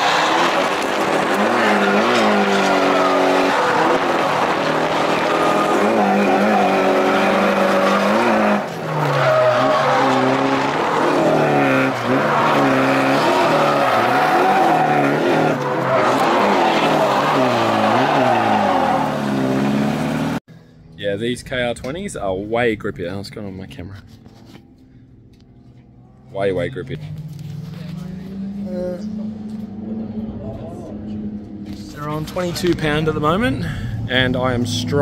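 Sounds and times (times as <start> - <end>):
tyres skidding: 0.0 - 20.4
car engine revving: 0.0 - 20.5, 23.5 - 35.0.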